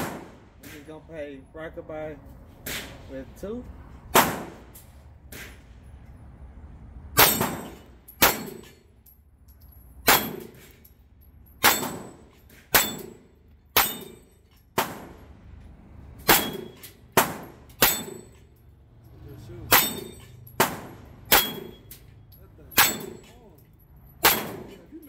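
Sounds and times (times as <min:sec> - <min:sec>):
gunshots: 0:00.0 - 0:00.8, 0:04.1 - 0:04.7, 0:19.7 - 0:21.8, 0:24.2 - 0:24.8
metallic clang of steel target: 0:07.2 - 0:08.9, 0:10.0 - 0:10.9, 0:11.6 - 0:15.2, 0:16.2 - 0:18.6, 0:19.6 - 0:25.0.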